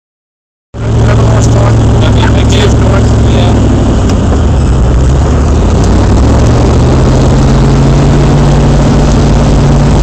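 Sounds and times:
vehicle engine drone from inside cabin: 0.8s - 10.0s.

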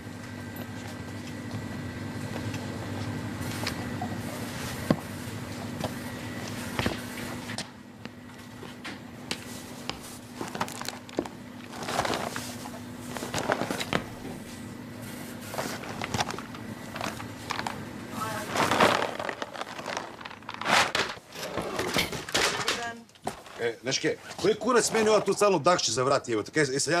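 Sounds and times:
rustling: 15.4s - 21.2s.

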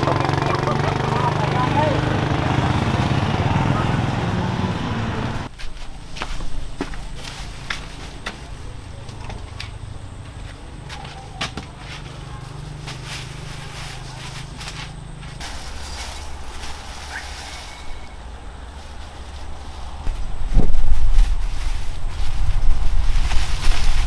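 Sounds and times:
footsteps on concrete: 5.5s - 8.5s, 9.5s - 15.6s.

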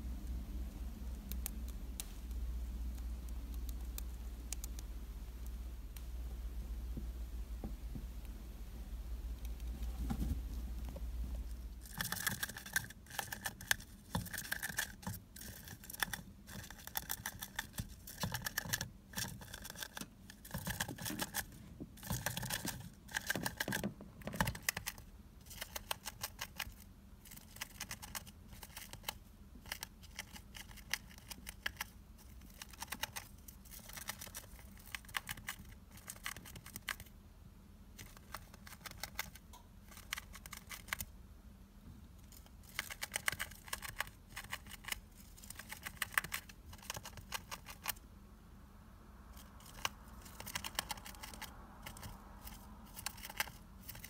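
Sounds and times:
gerbil gnawing cardboard: 9.4s - 37.1s, 37.9s - 41.1s, 42.2s - 48.0s, 49.4s - 54.0s.

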